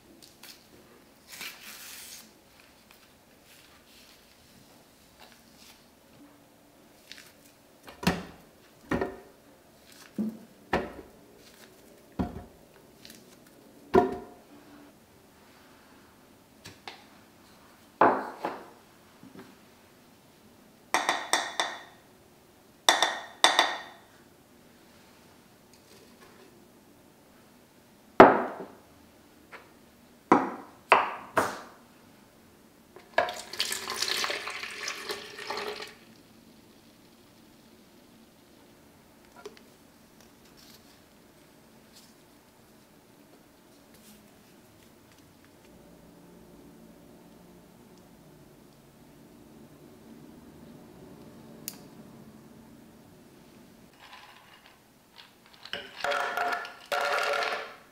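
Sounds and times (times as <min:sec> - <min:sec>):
milk pouring into pitcher: 0:33.0 - 0:36.2.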